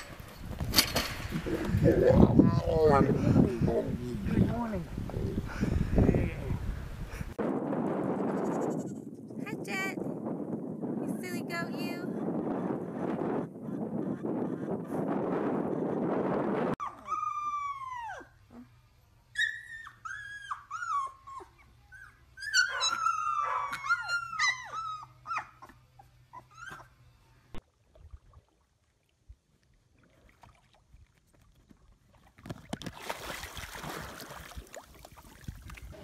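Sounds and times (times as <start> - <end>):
puppies howling and whimpering: 16.8 - 18.4, 19.4 - 26.9.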